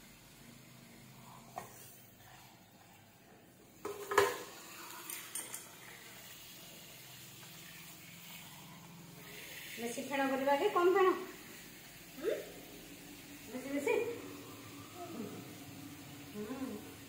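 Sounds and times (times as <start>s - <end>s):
water spraying into sink: 3.8s - 17.0s.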